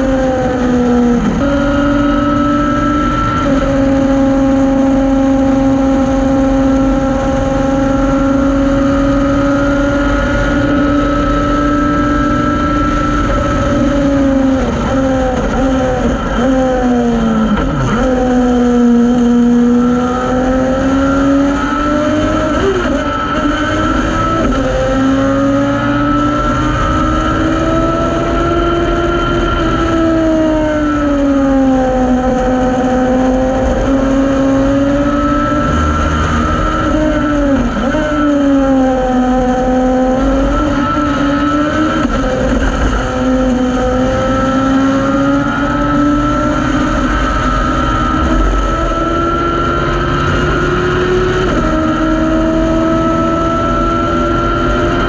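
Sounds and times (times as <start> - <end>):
race car engine at speed: 0.0 - 55.0
wind and road noise: 0.0 - 55.0.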